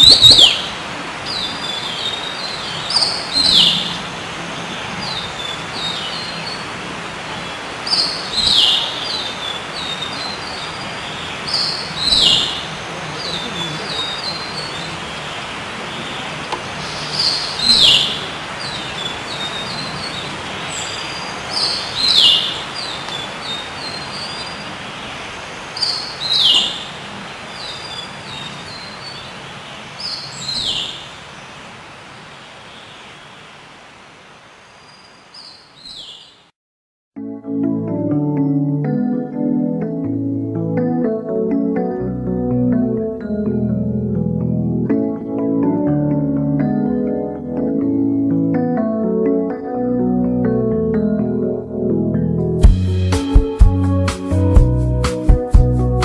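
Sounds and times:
songbird singing: 0.0 - 36.5.

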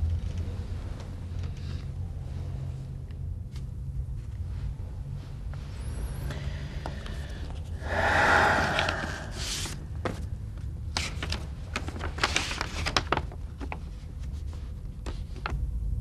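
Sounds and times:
low steady hum: 0.0 - 10.8
paper letter crackling and rustling: 11.0 - 15.6.

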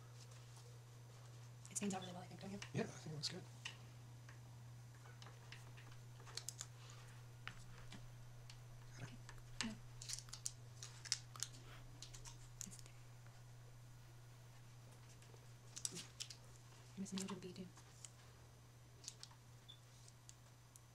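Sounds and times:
steady low hum: 0.0 - 20.9
tape clicks and crackles: 3.6 - 6.8, 7.4 - 13.0, 14.9 - 18.2, 19.0 - 20.9.

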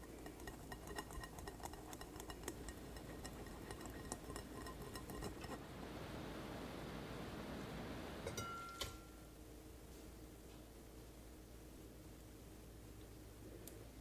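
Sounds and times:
egg scratching through wire strainer: 0.0 - 5.7
faint hiss: 5.6 - 14.0.

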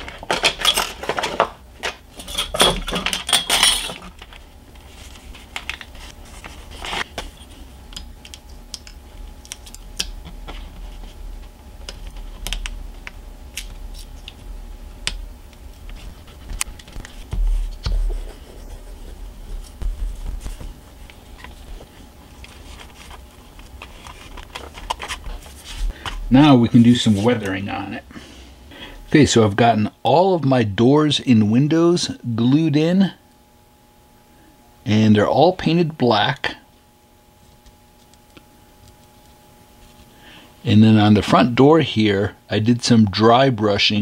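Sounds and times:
rustling and handling: 0.0 - 14.5, 15.5 - 27.9.

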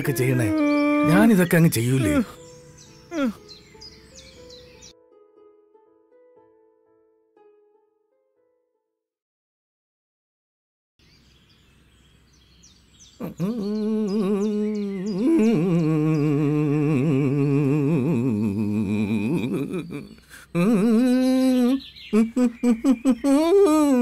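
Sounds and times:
man humming: 0.0 - 2.4, 3.1 - 3.4, 13.2 - 24.0
birds chirping faintly: 0.0 - 5.2, 11.0 - 24.0.

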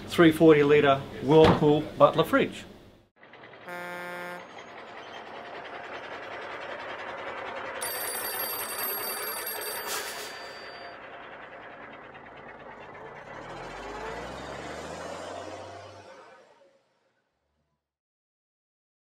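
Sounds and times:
vehicle driving past: 3.1 - 17.7
horn beep: 3.6 - 4.8
telephone ringing: 7.8 - 11.2.

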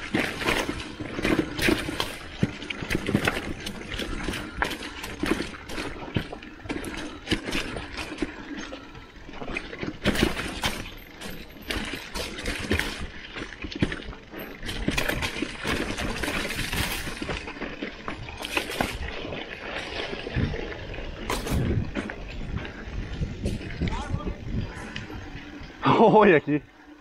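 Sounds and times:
bike rattling over bumps: 0.0 - 27.0
bike tyres on dirt: 0.0 - 27.0.

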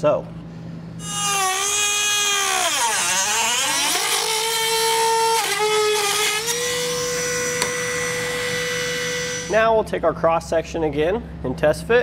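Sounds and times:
rotary tool whining: 1.0 - 9.6.

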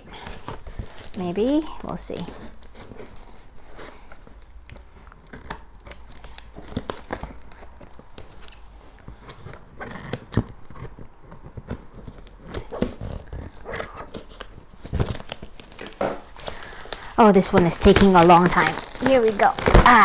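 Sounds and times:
packing tape tearing: 0.0 - 20.0.

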